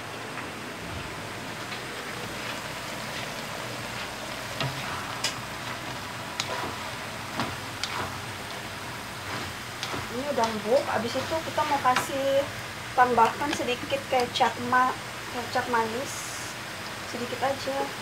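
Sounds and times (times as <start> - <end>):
vegetables sizzling in oil: 1.6 - 18.0
spatula scraping a wok: 6.4 - 12.2.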